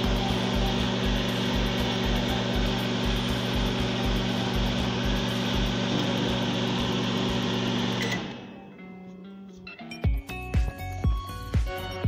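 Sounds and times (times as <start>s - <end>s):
microwave oven humming: 0.0s - 9.2s.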